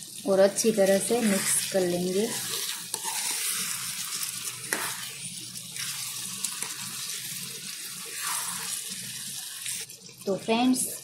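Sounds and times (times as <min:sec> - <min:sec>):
curry sizzling in a steel pan: 0:00.0 - 0:11.0
metal spatula scraping pan: 0:00.8 - 0:06.8, 0:08.1 - 0:08.9.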